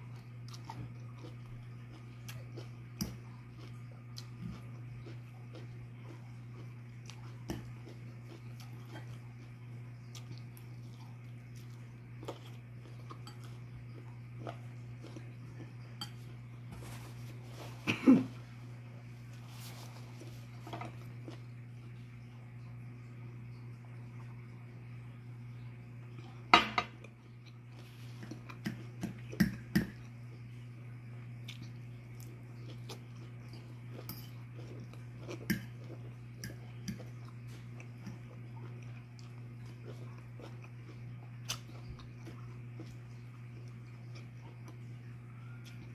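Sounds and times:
soft chewing: 0:00.0 - 0:24.7, 0:25.4 - 0:45.9
steady low hum: 0:00.0 - 0:45.9
fork clinking against a bowl: 0:34.0 - 0:34.4.

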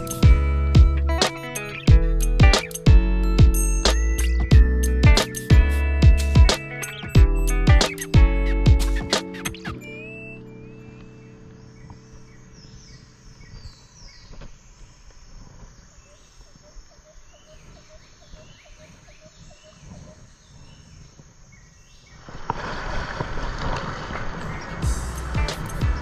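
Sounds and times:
birds chirping: 0:03.5 - 0:22.3, 0:24.1 - 0:26.0
outdoor background noise: 0:05.1 - 0:26.0
paddle rushing through water: 0:22.2 - 0:26.0.

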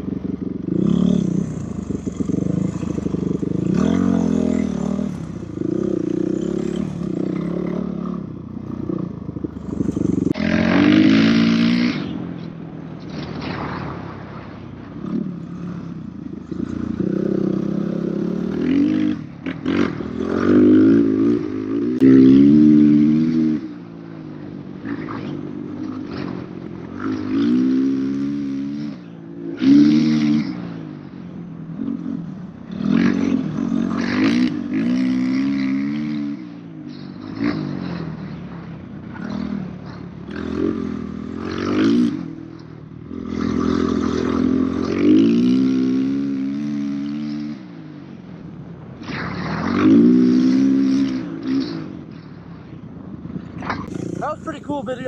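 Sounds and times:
dirt bike engine revving: 0:00.0 - 0:12.4, 0:15.0 - 0:23.8, 0:24.8 - 0:30.8, 0:31.9 - 0:38.3, 0:39.0 - 0:47.7, 0:49.0 - 0:51.9, 0:53.6 - 0:55.0.

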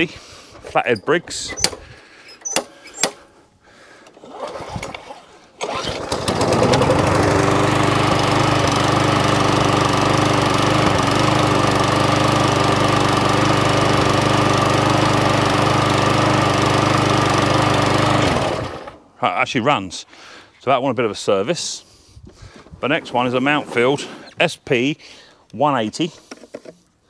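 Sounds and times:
lawn mower engine running: 0:05.6 - 0:19.0.

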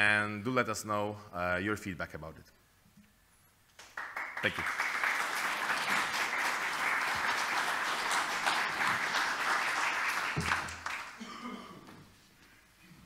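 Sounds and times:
audience applauding: 0:03.8 - 0:11.2.

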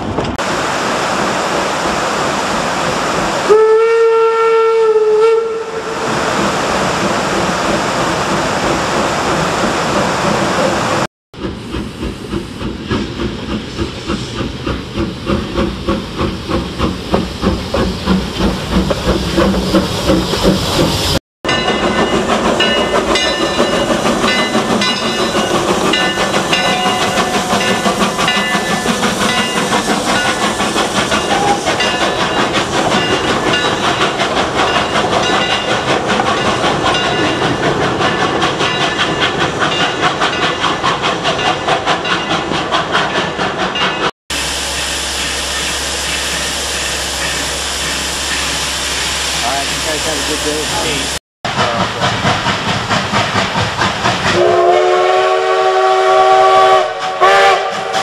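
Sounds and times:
steam locomotive chuffing: 0:01.1 - 0:58.0
steam whistle: 0:03.5 - 0:06.0, 0:31.2 - 0:31.9, 0:54.3 - 0:58.0
steam hissing: 0:05.8 - 0:58.0.

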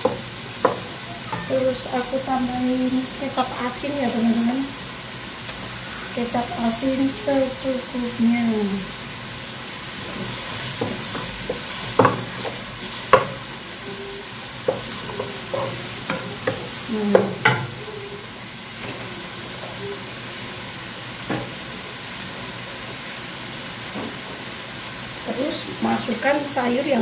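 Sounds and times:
wooden spatula knocking on pan: 0:00.0 - 0:01.5, 0:10.2 - 0:13.5, 0:14.6 - 0:17.8
beef sizzling in a wok: 0:00.0 - 0:27.0.

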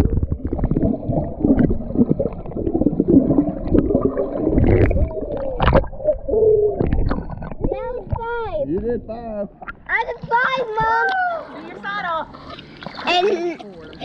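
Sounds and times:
muffled underwater bubbles gurgling: 0:00.0 - 0:07.9
underwater clicks and pops: 0:03.7 - 0:06.2, 0:06.8 - 0:08.9.

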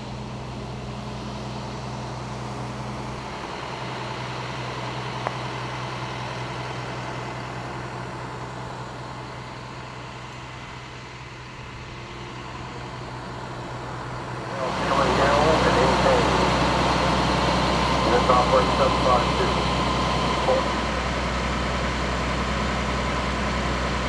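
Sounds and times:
vehicle engine idling: 0:00.0 - 0:24.0.

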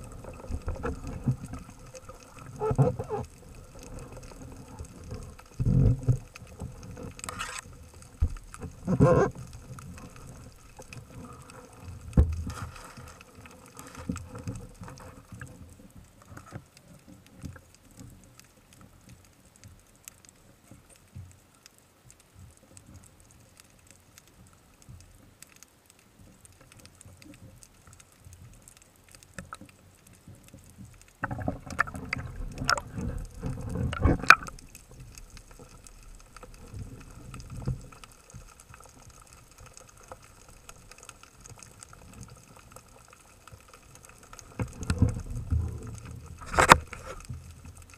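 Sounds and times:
rushing water: 0:00.0 - 0:15.6, 0:30.7 - 0:47.9
muffled underwater water noise: 0:00.0 - 0:47.9.

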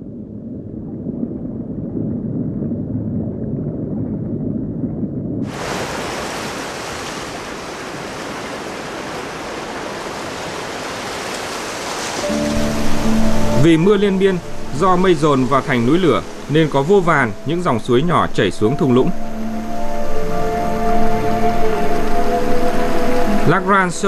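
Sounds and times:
muffled underwater ambience: 0:00.0 - 0:06.2, 0:12.2 - 0:24.0
ocean surf breaking: 0:05.4 - 0:24.0.

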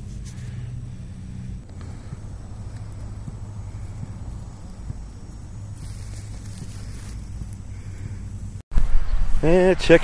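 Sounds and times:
low steady rumble: 0:00.0 - 0:10.0
faint ticks: 0:01.6 - 0:07.9.

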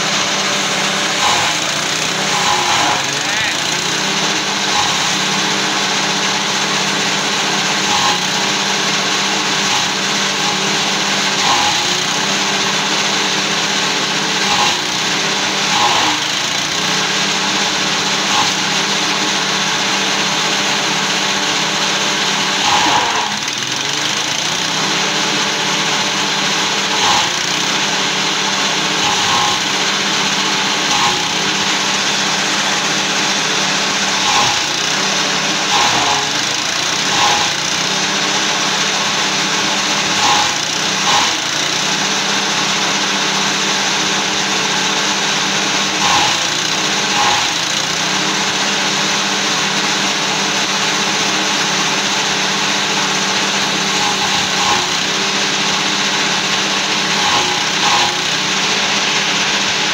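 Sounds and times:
chopper chopping stalks: 0:00.0 - 0:05.6, 0:22.3 - 0:37.8, 0:46.0 - 0:47.8, 0:53.8 - 0:59.9
small petrol engine running: 0:00.0 - 0:59.9.

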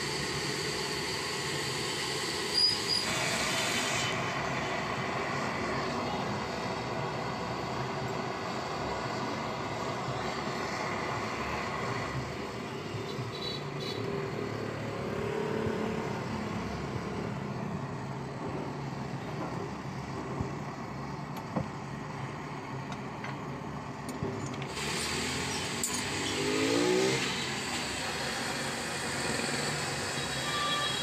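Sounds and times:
blowtorch flame hissing: 0:00.0 - 0:19.2, 0:24.6 - 0:31.0.

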